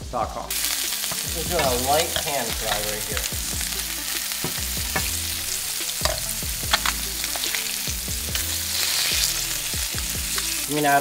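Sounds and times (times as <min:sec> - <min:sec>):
fish fillets sizzling in oil: 0:00.5 - 0:11.0
spatula clicking and scraping pan: 0:01.0 - 0:03.0, 0:05.9 - 0:07.7.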